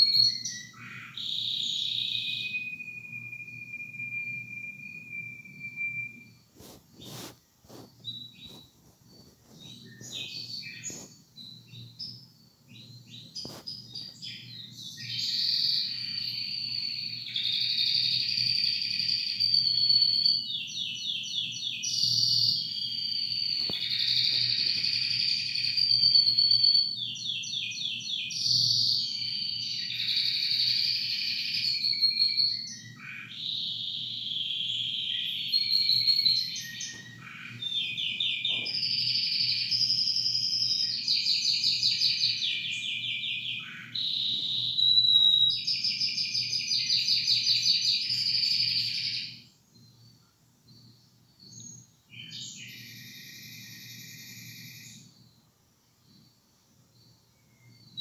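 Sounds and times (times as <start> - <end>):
canary singing trills: 0.0 - 55.4.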